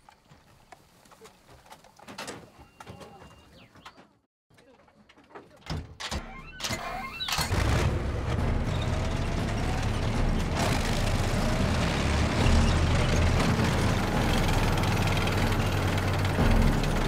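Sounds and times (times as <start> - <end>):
vehicle engines rumbling: 7.4 - 17.0
metal tracks clattering: 7.5 - 17.0.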